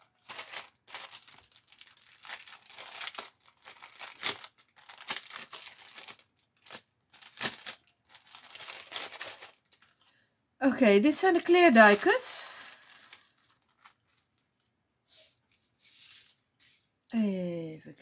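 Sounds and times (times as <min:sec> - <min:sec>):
plastic packaging crinkling: 0:00.0 - 0:10.2, 0:11.0 - 0:14.7.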